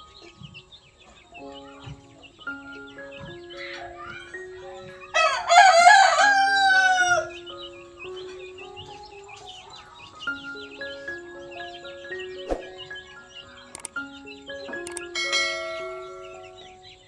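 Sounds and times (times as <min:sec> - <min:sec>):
soft background music: 0:00.0 - 0:17.0
rooster crowing: 0:05.1 - 0:07.4.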